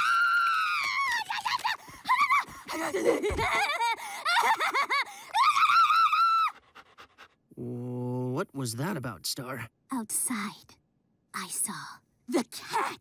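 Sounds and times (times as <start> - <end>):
cartoon dog excited cries: 3.3 - 6.8.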